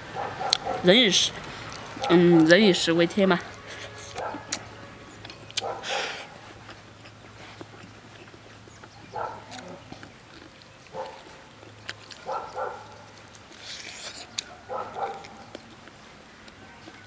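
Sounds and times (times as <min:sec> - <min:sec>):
person chewing: 0:01.4 - 0:02.6, 0:05.2 - 0:17.0.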